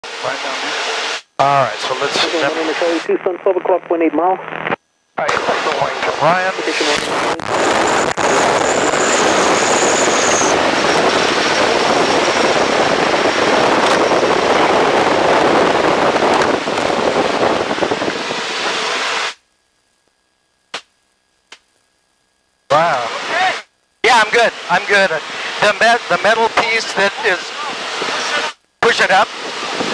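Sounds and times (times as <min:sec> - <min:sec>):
wind rushing through open canopy: 0:07.0 - 0:19.4, 0:29.1 - 0:29.9.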